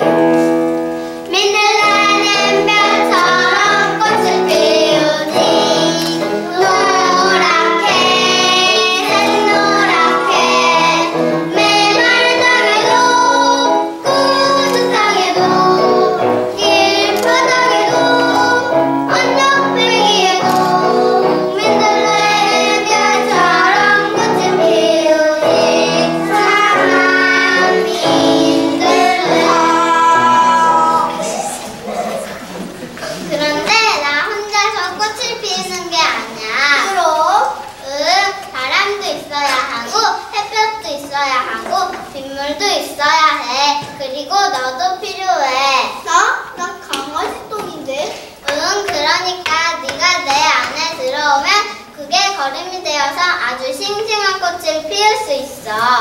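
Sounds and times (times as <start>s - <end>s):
children singing: 1.3s - 33.7s.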